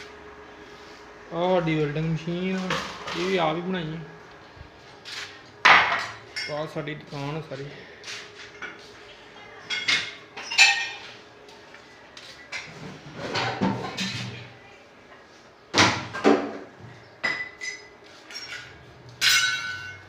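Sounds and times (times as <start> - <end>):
short metallic ring: 19.2 - 20.0.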